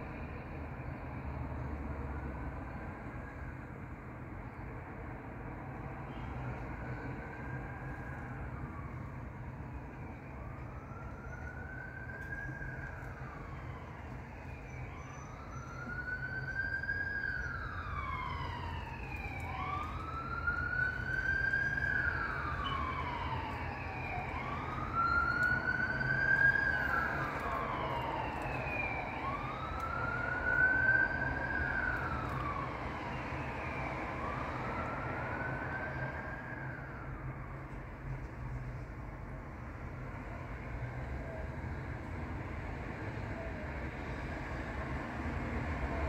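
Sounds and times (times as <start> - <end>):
traffic rumble: 0.0 - 46.0
ambulance siren wailing: 5.8 - 37.8.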